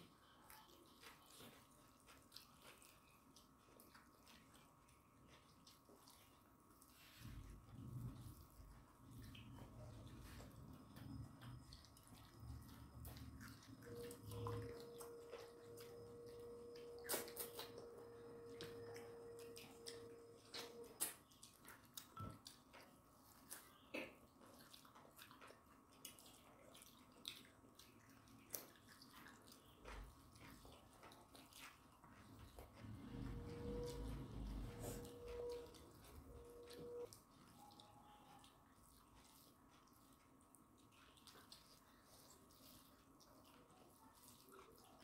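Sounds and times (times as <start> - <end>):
chewing and lip smacks: 0.0 - 45.0
faint steady tone: 6.8 - 21.1, 32.8 - 39.4.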